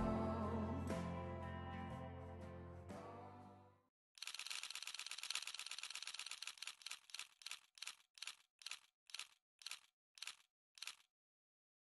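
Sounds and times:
rapid mechanical clicks: 4.2 - 11.1.

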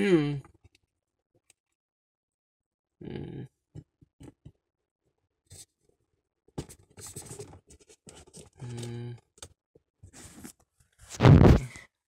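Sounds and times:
scratching and rubbing handling noise: 6.6 - 9.0, 10.0 - 11.7.

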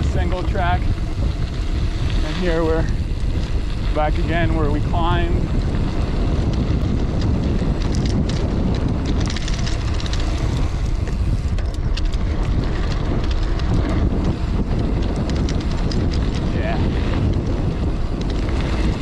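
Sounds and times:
bike tyres crunching over dirt: 0.0 - 19.0
small clicks and rattles: 0.0 - 19.0
wind rushing over microphone: 0.0 - 19.0.

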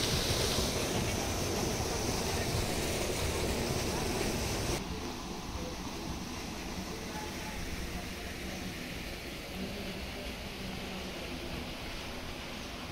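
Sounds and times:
water pouring into stone tank: 0.0 - 4.8.

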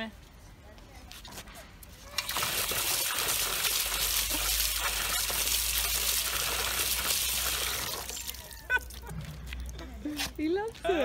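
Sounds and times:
water pouring and splashing: 2.0 - 9.8.

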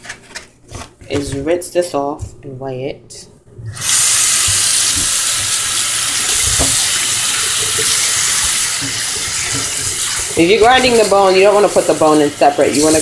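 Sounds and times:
tap water running into sink: 3.8 - 13.0.

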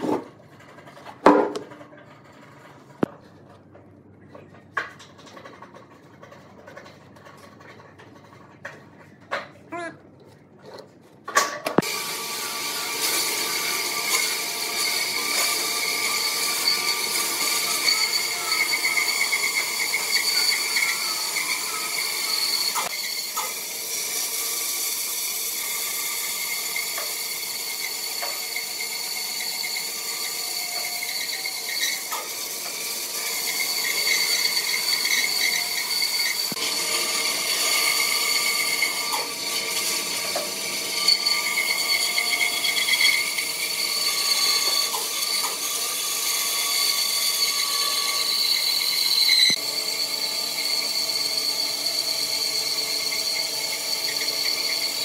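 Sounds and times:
bandsaw whining through wood: 11.8 - 55.0.

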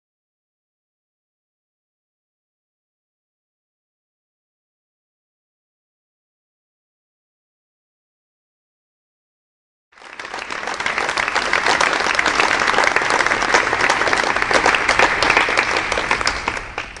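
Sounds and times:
audience applauding: 10.0 - 17.0.

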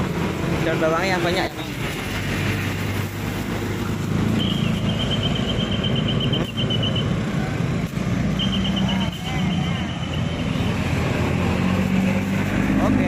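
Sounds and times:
high repeated chirps: 4.3 - 7.2, 8.2 - 10.5.

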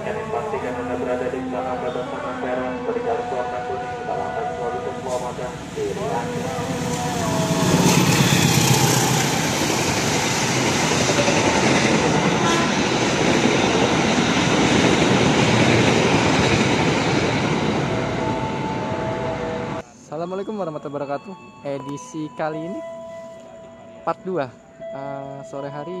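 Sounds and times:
locomotive engine drone: 0.0 - 19.8
train carriages rushing and rattling: 3.4 - 19.8.

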